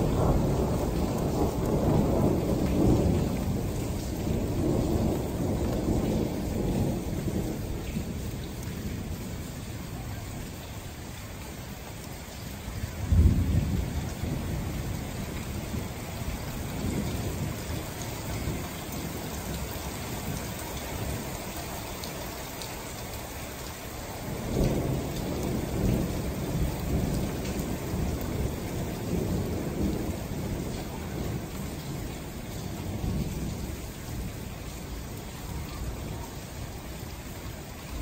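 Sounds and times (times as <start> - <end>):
rolling thunder: 0.0 - 10.6, 12.7 - 21.4, 24.2 - 38.0
steady rain: 0.0 - 38.0.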